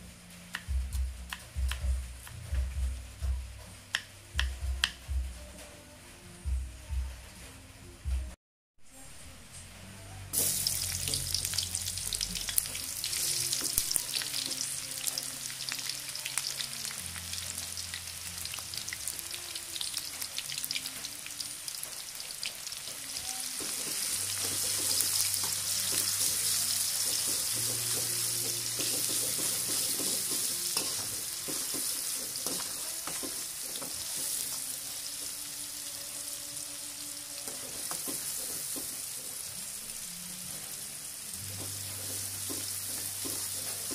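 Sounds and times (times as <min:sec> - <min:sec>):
food sizzling in hot oil: 0:10.3 - 0:43.9
spatula scraping and tapping wok: 0:23.6 - 0:34.6, 0:37.4 - 0:39.4, 0:41.6 - 0:43.9.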